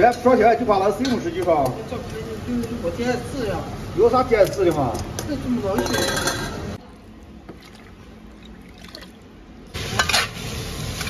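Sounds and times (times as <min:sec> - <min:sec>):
potato sizzling in hot oil: 0:09.7 - 0:11.0.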